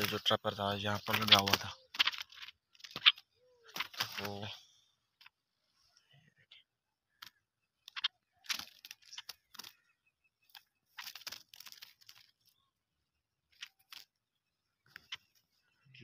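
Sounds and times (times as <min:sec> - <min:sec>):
rustling and crunching of dry material: 0:00.0 - 0:04.6, 0:08.2 - 0:12.8, 0:13.4 - 0:14.3.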